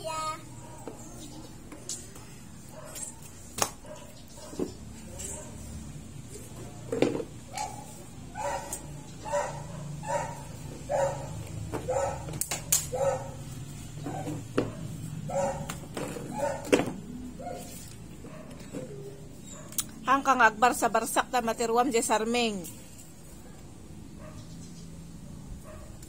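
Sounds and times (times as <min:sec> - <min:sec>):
dog barking: 0:00.6 - 0:01.0, 0:02.7 - 0:03.2, 0:03.8 - 0:05.7, 0:07.5 - 0:13.4, 0:14.0 - 0:16.8, 0:17.4 - 0:18.7, 0:24.2 - 0:24.5, 0:25.6 - 0:26.0.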